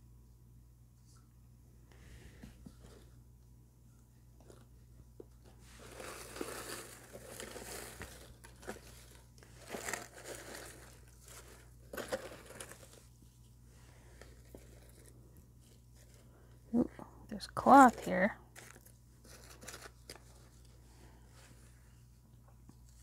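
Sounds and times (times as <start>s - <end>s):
paper shred rustling and crinkling: 5.5s - 13.2s, 14.0s - 16.3s, 17.7s - 20.8s.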